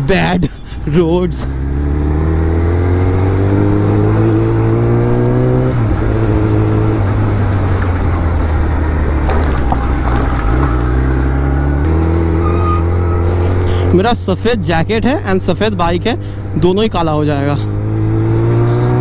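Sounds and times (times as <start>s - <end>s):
motorcycle engine revving: 1.4s - 14.0s, 17.3s - 19.0s.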